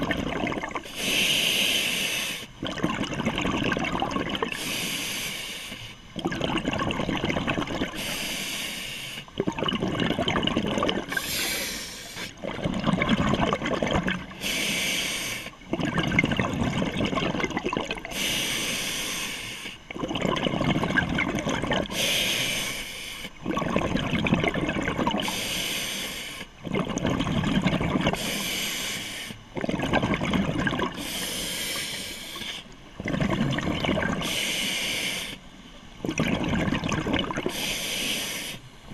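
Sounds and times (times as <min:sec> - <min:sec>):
exhaled bubbles rumbling: 0:00.0 - 0:01.0, 0:02.5 - 0:04.7, 0:06.1 - 0:08.1, 0:09.3 - 0:14.4, 0:15.6 - 0:18.3, 0:19.9 - 0:22.1, 0:23.4 - 0:25.4, 0:26.6 - 0:28.4, 0:29.4 - 0:31.2, 0:32.8 - 0:34.4, 0:35.9 - 0:37.7
regulator inhale hiss: 0:00.9 - 0:02.5, 0:04.5 - 0:06.0, 0:07.9 - 0:09.3, 0:11.1 - 0:12.4, 0:14.3 - 0:15.6, 0:18.1 - 0:19.8, 0:21.9 - 0:23.4, 0:25.2 - 0:26.6, 0:28.2 - 0:29.4, 0:31.0 - 0:32.8, 0:34.2 - 0:35.5, 0:37.5 - 0:38.7.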